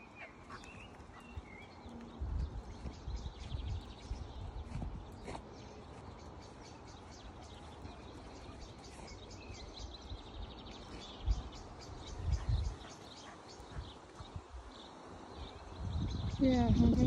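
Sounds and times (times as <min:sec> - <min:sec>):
songbirds chirping and trilling: 0:00.0 - 0:17.0.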